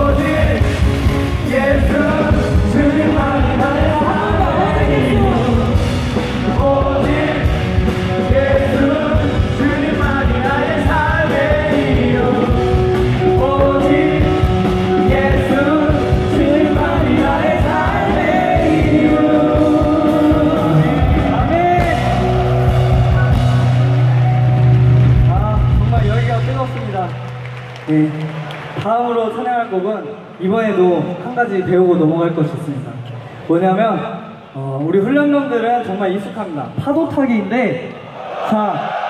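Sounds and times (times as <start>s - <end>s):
worship song with band: 0.0s - 28.2s.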